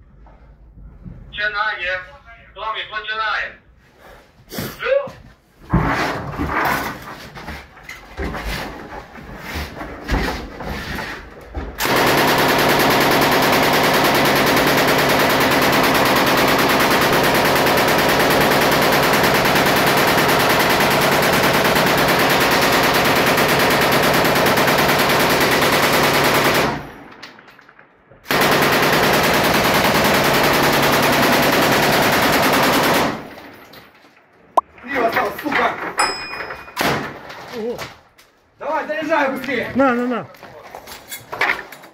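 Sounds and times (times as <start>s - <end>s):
machine gun firing bursts: 11.8s - 27.1s, 28.3s - 33.4s.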